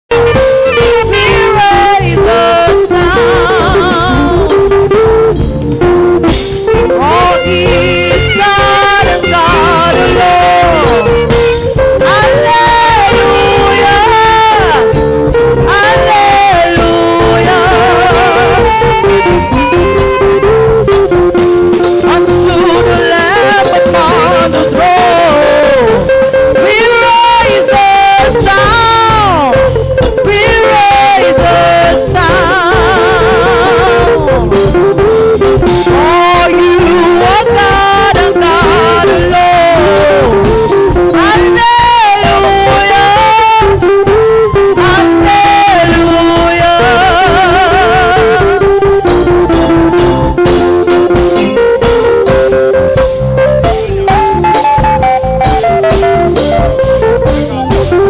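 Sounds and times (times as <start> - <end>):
live band music: 0.0 - 58.0
person singing: 0.2 - 5.1, 6.7 - 53.0.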